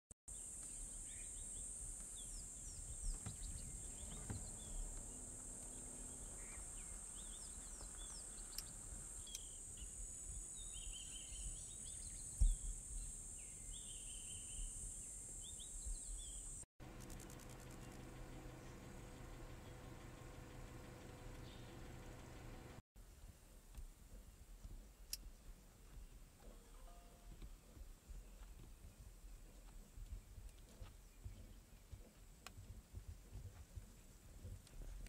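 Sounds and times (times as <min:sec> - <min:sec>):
high-pitched insect drone: 0:16.9 - 0:18.2.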